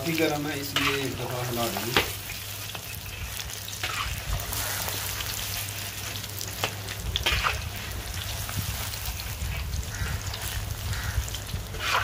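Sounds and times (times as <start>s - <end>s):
chicken deep-frying in hot oil: 0.0s - 12.0s
metal skimmer scraping wok: 0.5s - 3.2s, 3.8s - 5.0s, 7.2s - 7.9s, 11.7s - 12.0s.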